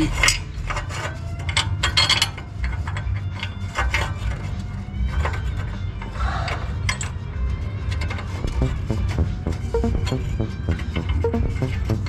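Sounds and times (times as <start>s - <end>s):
exhaust pipe metal clinks and rattles: 0.0s - 4.5s
steady low hum: 8.4s - 12.0s.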